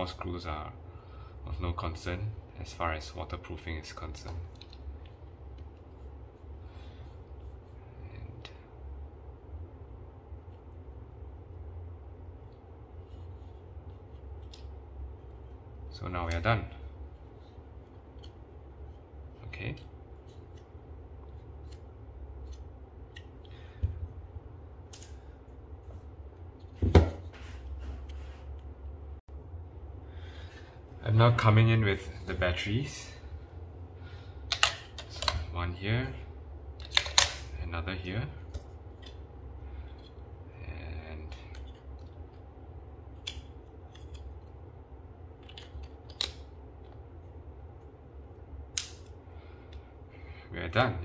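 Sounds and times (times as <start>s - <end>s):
low steady hum: 0.0s - 51.0s
plastic clicks and snaps: 45.4s - 46.5s, 48.7s - 49.8s.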